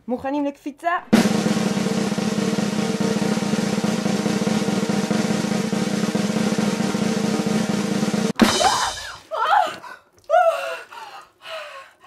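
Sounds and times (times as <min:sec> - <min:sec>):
fast drum roll: 0:01.0 - 0:09.2.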